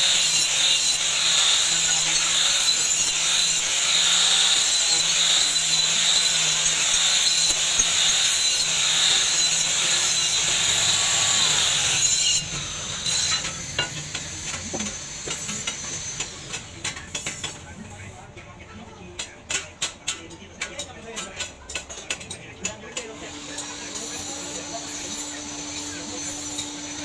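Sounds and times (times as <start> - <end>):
angle grinder grinding steel: 0.0 - 17.6, 23.1 - 27.0.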